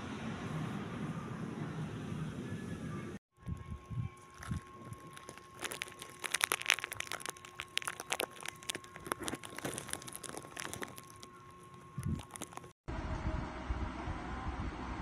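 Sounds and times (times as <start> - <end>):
headphones handling crackles: 4.2 - 12.8.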